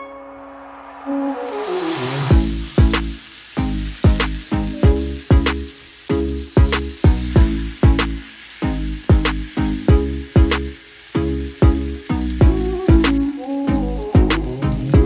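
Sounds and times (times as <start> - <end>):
fat sizzling in a skillet: 0.1 - 15.0
music with a loud steady beat: 6.5 - 8.2.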